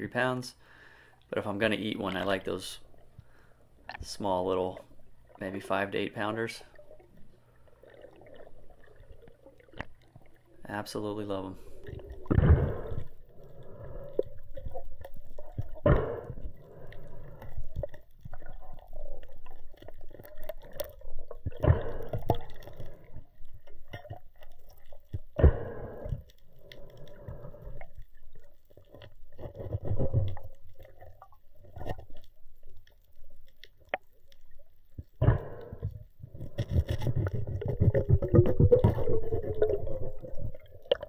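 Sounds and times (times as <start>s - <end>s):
underwater rumble: 1.6s - 41.0s
water gurgling rushes: 36.7s - 41.0s.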